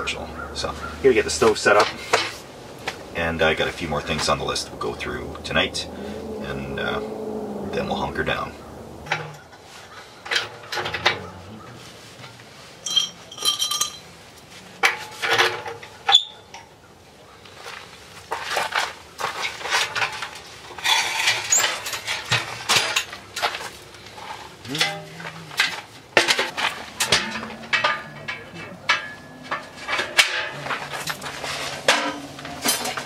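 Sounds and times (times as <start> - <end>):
metal stove parts clanking: 9.0 - 9.5, 10.2 - 11.3, 14.8 - 16.7, 19.6 - 33.0.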